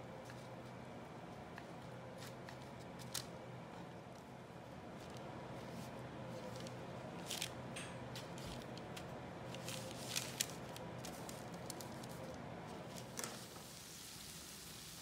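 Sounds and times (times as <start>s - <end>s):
faint steady hum: 0.0s - 15.0s
paper towel crinkling: 8.2s - 15.0s.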